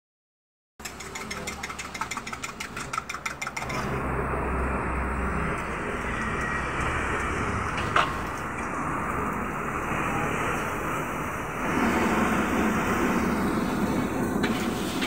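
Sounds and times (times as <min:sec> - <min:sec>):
egg frying in oil: 0:00.8 - 0:03.7.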